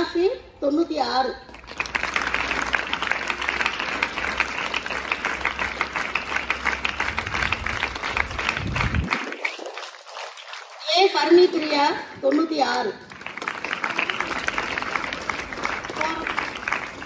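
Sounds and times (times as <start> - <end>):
audience applauding: 1.5 - 10.8, 13.0 - 17.0.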